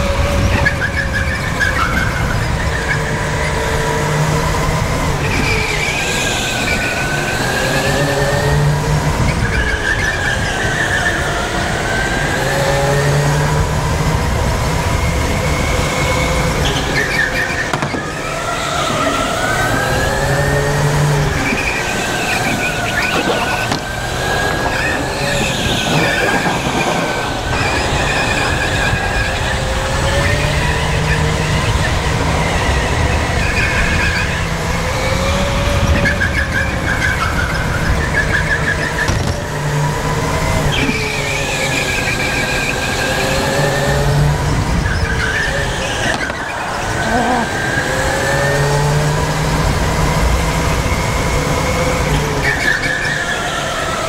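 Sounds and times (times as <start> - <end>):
kart motor revving: 0.0 - 54.0
tyres squealing: 15.4 - 35.1, 35.8 - 49.5.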